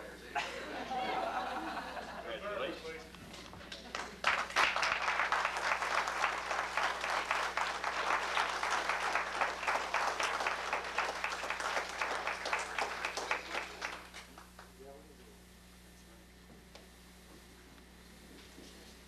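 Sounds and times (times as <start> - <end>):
audience applauding: 3.7 - 14.7.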